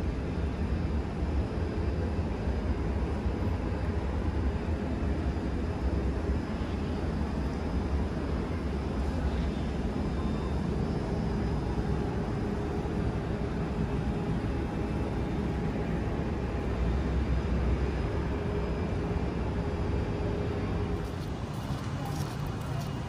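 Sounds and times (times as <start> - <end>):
faint steady hum: 0.0 - 23.0
low rumble of city ambience: 0.0 - 23.0.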